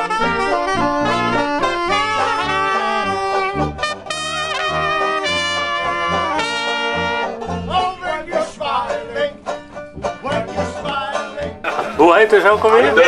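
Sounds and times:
soprano saxophone long notes: 0.0s - 7.8s
banjo: 0.0s - 13.0s
jazz band playing: 0.0s - 13.0s.

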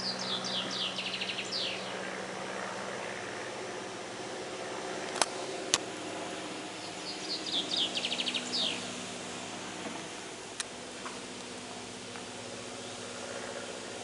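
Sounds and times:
songbird chirping and trilling: 0.0s - 2.1s, 6.8s - 9.0s
biplane engine droning: 0.0s - 14.0s.

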